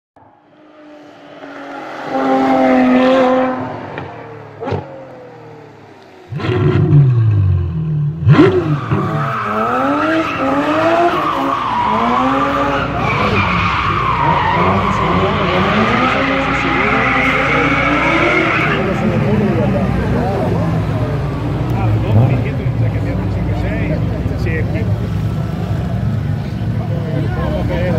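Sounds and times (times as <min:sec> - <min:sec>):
car engine revving: 0:00.2 - 0:27.9.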